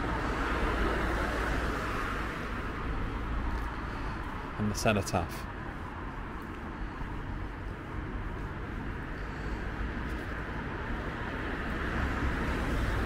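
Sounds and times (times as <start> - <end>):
passing car tyres and engine: 0.0 - 13.0.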